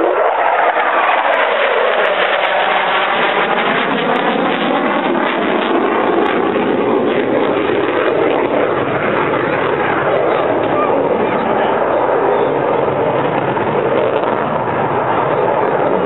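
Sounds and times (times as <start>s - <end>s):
fighter jet flying past: 0.0s - 16.0s.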